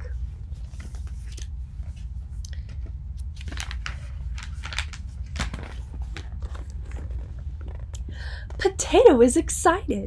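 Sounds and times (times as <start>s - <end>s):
steady low hum: 0.0s - 10.0s
book pages rustling: 0.5s - 7.9s.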